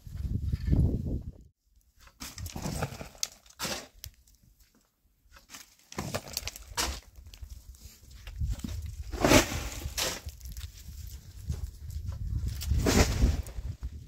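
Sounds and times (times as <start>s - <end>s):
tool scraping stony dirt: 2.0s - 4.4s, 5.3s - 14.0s.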